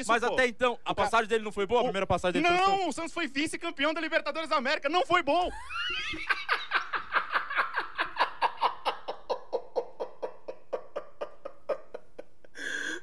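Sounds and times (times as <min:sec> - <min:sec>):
man laughing hard: 0:05.5 - 0:12.6.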